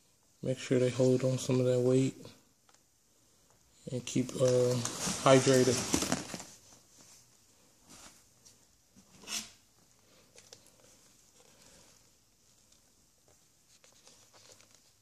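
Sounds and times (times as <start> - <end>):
plastic cup scraping: 4.4 - 6.4.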